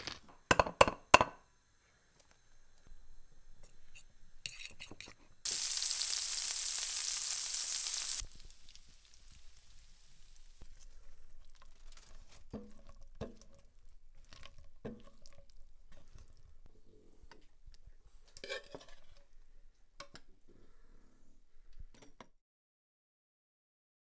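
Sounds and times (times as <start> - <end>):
faint hiss: 1.5 - 11.2
stirring and scraping in pan: 3.7 - 5.7, 8.1 - 16.7, 18.1 - 19.4.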